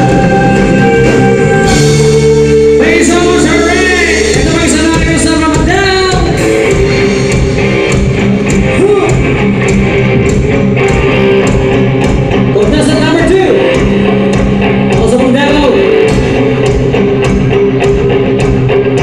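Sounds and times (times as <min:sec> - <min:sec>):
person singing: 0:00.0 - 0:07.2
live rock band playing: 0:00.0 - 0:19.0.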